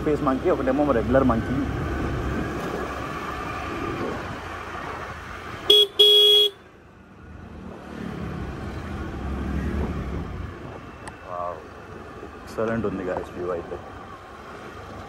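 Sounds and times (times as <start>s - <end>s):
wind and road rumble: 0.0s - 15.0s
vehicle horn tooting: 5.7s - 6.6s.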